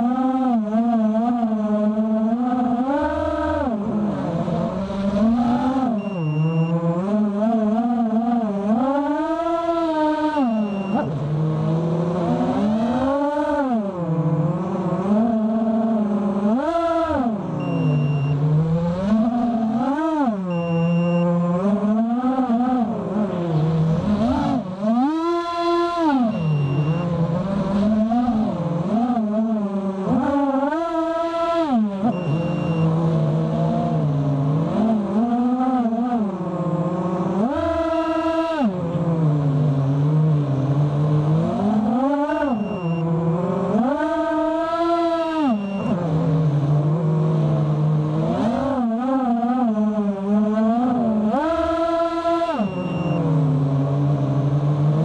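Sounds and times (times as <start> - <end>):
quadcopter motors buzzing: 0.0 - 55.0
quadcopter motors whining: 15.0 - 34.1, 37.4 - 39.4.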